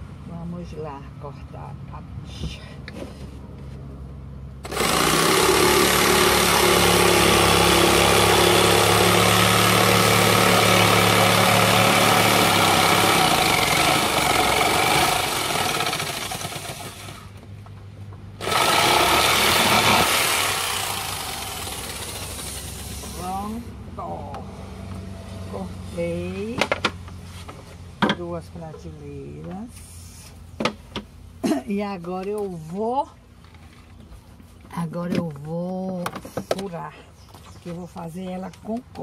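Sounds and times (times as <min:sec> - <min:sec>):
jigsaw cutting wood: 0:04.6 - 0:17.3, 0:18.4 - 0:23.5.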